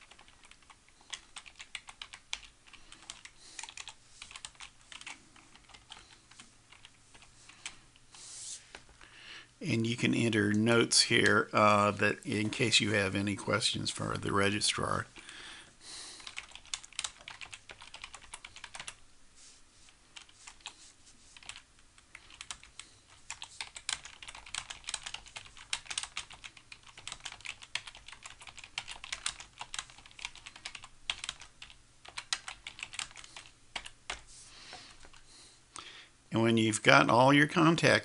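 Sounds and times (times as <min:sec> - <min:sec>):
typing on computer keyboard: 0:00.0 - 0:07.8, 0:16.2 - 0:19.0, 0:21.4 - 0:34.2, 0:34.8 - 0:35.2.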